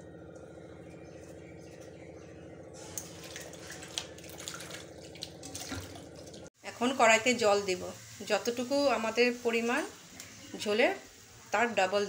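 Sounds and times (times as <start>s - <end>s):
steady low hum: 0.0s - 10.6s
hands rubbing leaves in water: 2.8s - 6.5s
water splashing: 2.9s - 6.5s.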